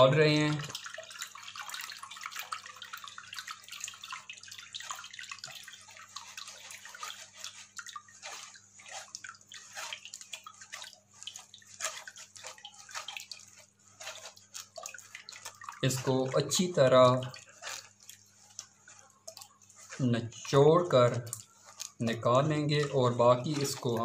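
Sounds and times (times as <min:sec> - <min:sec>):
fingers rubbing wet paste in sieve: 0:00.0 - 0:24.0
liquid trickling and dripping: 0:00.0 - 0:24.0.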